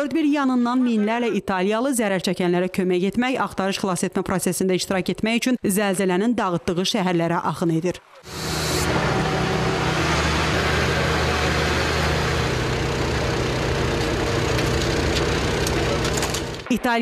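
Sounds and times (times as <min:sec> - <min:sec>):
hiss of activity: 0:08.3 - 0:09.6
engine humming: 0:08.3 - 0:16.7.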